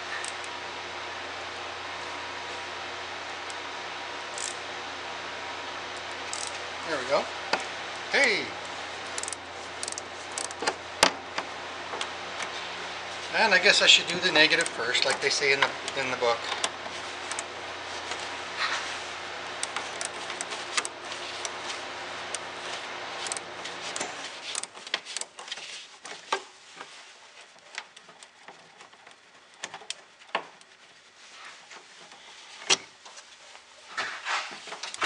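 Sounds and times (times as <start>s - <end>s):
steady low hum: 0.0s - 35.0s
wrench clicking on metal: 4.4s - 4.6s, 6.3s - 6.6s, 9.2s - 10.6s, 23.2s - 23.4s.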